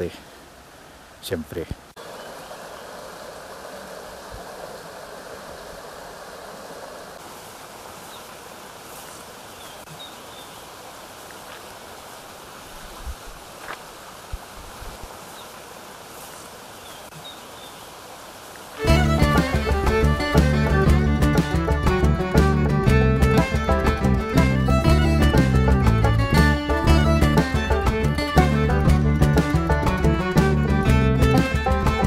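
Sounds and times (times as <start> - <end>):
stream rushing over rocks: 0.0 - 32.0
soft low knocks: 18.8 - 32.0.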